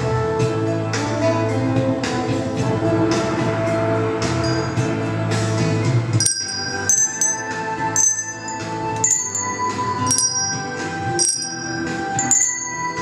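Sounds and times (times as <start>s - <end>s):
low sustained accompaniment: 2.5s - 13.0s
handbells ringing a melody: 4.4s - 4.9s, 6.2s - 13.0s.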